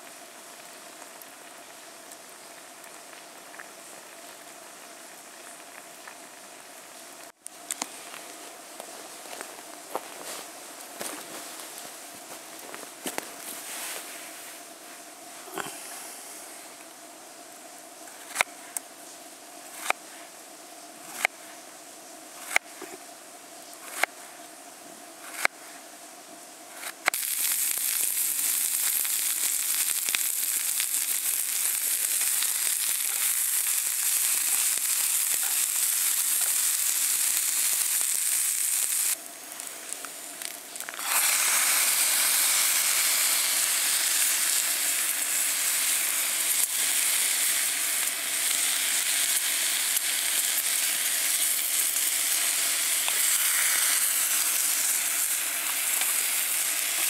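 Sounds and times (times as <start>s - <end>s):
food sizzling in a pan: 27.1s - 57.0s.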